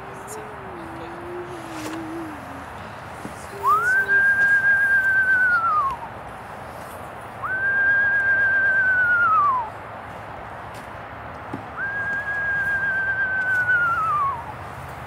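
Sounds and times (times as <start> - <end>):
person whistling owl call: 3.6 - 6.1, 7.4 - 9.7, 11.8 - 14.5.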